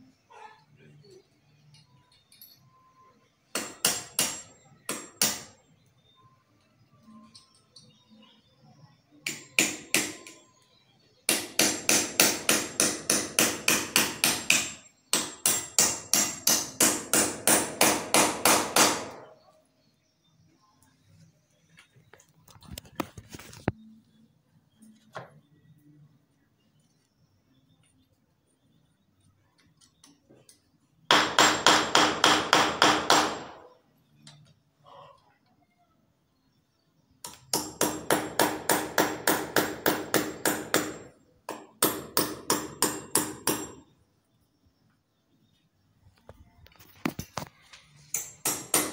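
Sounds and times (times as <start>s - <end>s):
hammer striking masonry wall: 3.5s - 5.6s, 9.2s - 10.4s, 11.3s - 19.4s, 31.1s - 33.7s, 37.2s - 43.9s, 48.1s - 48.9s.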